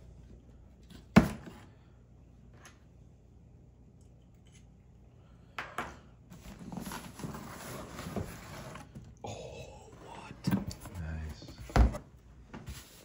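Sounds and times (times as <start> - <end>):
cardboard and plastic rustling: 6.3 - 9.0.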